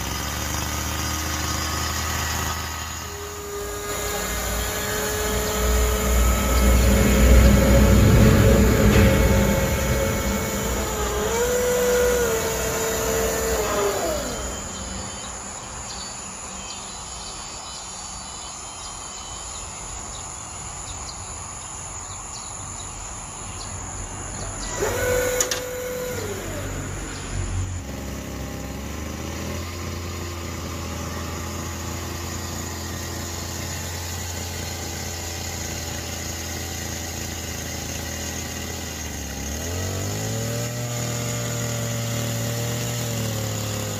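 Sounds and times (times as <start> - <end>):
electric motors whining: 0.0 - 17.6, 23.7 - 43.9
steady low hum: 2.8 - 18.6.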